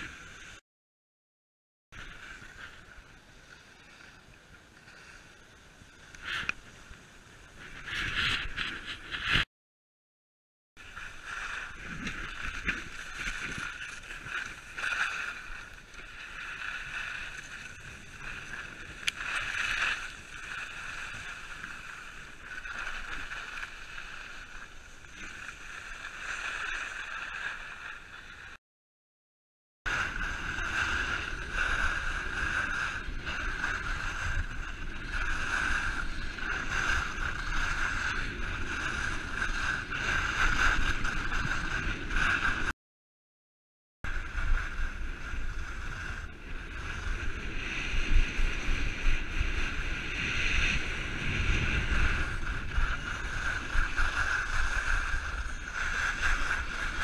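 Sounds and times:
wind rushing over microphone: 0.0 - 0.6, 10.8 - 24.2, 29.9 - 42.7, 44.1 - 57.0
skis scraping over snow: 4.9 - 9.5, 10.8 - 28.6, 29.9 - 42.7, 44.1 - 57.0.

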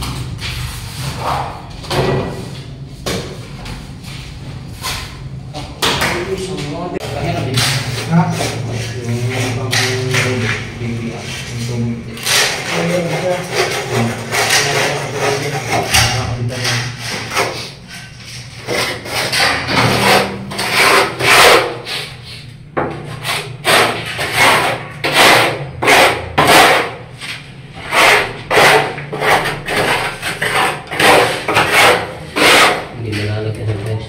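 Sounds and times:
hand tool scraping cement and tile: 7.0 - 33.7.

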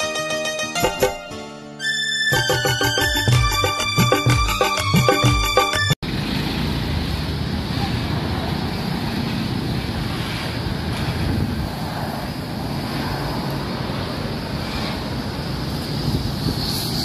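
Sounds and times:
wind buffeting microphone: 10.6 - 13.0, 15.3 - 17.0.

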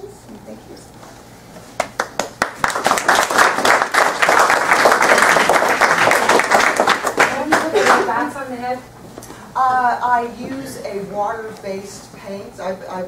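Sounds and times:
audience applauding: 1.8 - 8.2.

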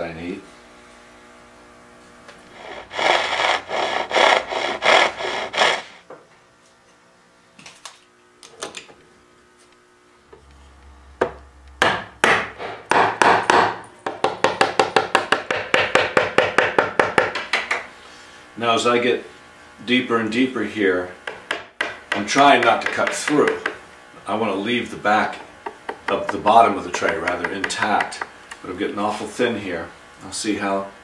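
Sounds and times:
hand saw cutting wood: 2.5 - 6.0, 22.2 - 23.8, 25.7 - 28.3.

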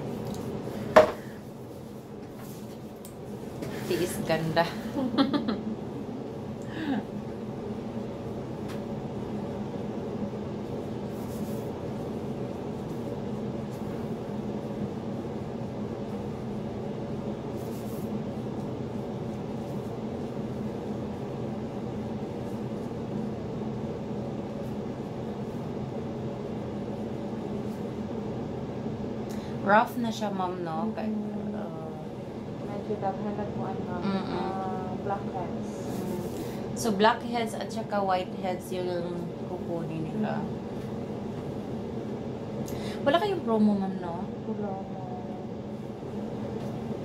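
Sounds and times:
machine hum with hiss: 0.0 - 30.3.

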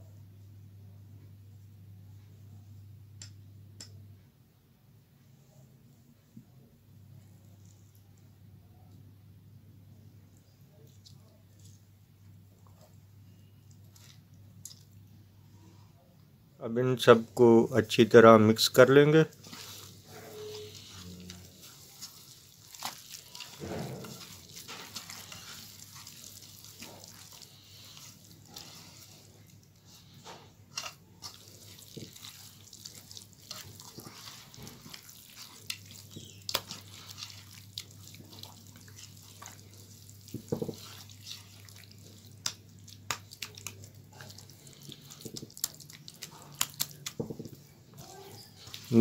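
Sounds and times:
hand mixing flour in bowl: 10.4 - 14.9, 16.7 - 49.0.

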